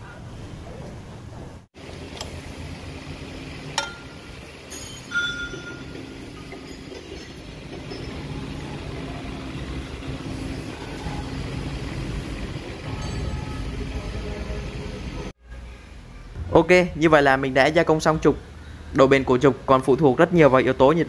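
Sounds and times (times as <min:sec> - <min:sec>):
workshop machinery rumbling: 0:00.2 - 0:15.4
metallic clinks with ring: 0:04.7 - 0:08.3, 0:12.9 - 0:13.6.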